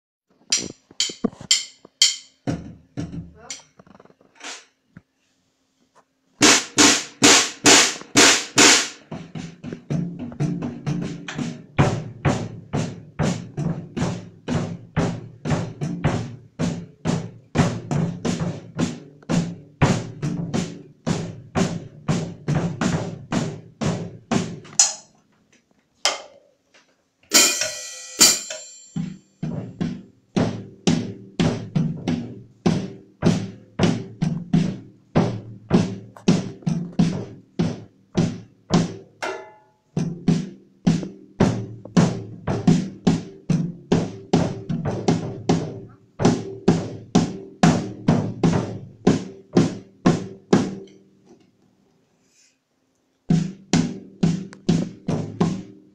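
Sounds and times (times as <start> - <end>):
drum beat on snare and bass drum: 0.5 - 3.6, 6.4 - 25.0, 27.3 - 50.9, 53.3 - 55.9
cymbal crashes: 27.3 - 29.0.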